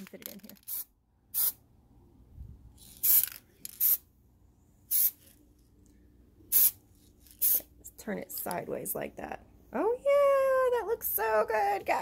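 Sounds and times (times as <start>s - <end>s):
aerosol spray can hissing: 0.7s - 1.6s, 3.0s - 4.0s, 4.9s - 5.2s, 6.5s - 6.8s, 7.4s - 7.7s.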